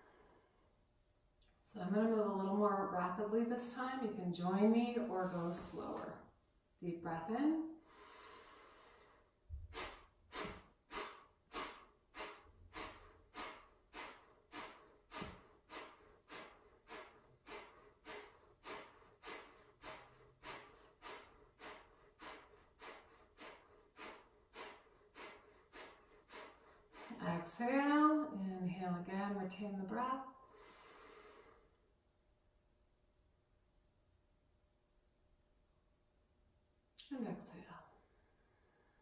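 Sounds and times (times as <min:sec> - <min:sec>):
woman forcefully exhaling through nose: 0:07.8 - 0:27.2
woman inhaling deeply: 0:07.8 - 0:27.3, 0:30.4 - 0:31.8.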